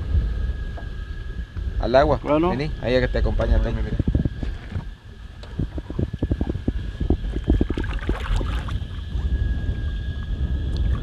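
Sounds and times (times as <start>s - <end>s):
steady high whine: 0.0s - 11.0s
wind gusting on microphone: 0.0s - 11.0s
water slapping boat hull: 3.2s - 9.4s.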